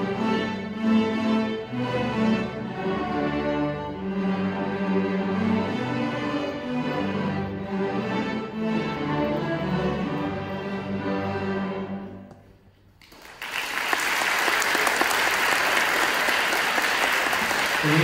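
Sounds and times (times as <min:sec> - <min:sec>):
string orchestra playing: 0:00.0 - 0:12.7
audience applause: 0:13.0 - 0:18.0.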